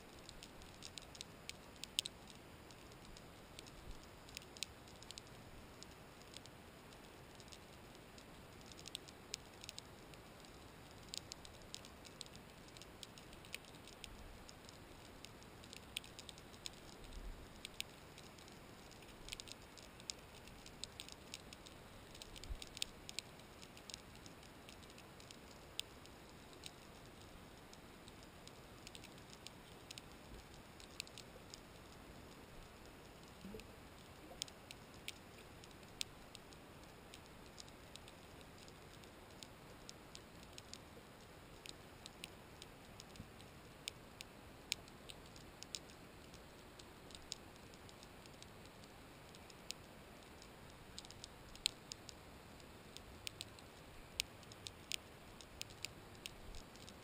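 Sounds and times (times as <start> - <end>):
faint steady hiss: 0.0 - 57.0
sharp underwater clicks: 0.1 - 57.0.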